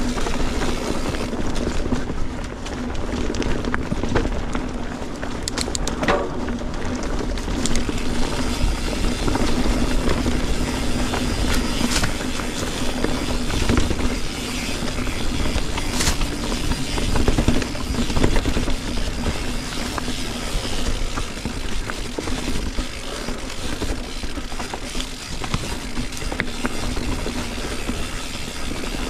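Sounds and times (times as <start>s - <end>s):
bike tyres rumbling on rocky trail: 0.0s - 29.0s
sharp knocks and rattles: 5.9s - 6.8s.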